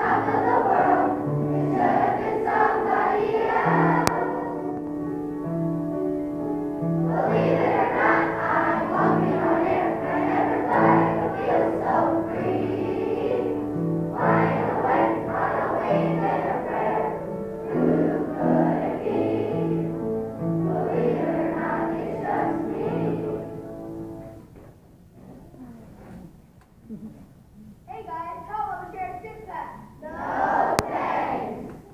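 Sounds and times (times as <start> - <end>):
children's choir singing: 0.0 - 5.6, 6.8 - 24.4, 30.0 - 31.9
instrumental accompaniment: 0.0 - 26.3.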